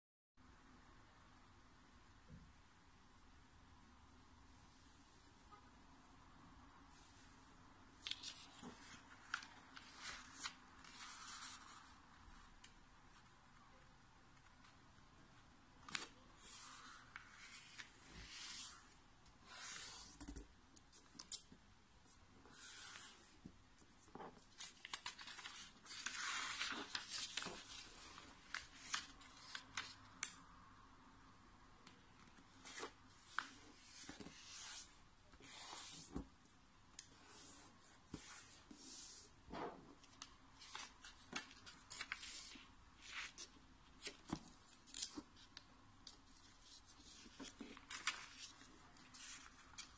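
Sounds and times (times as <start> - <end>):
paper rustling: 23.8 - 30.0, 40.0 - 45.5, 46.2 - 49.9
paper crackling: 24.1 - 30.3, 40.2 - 49.9.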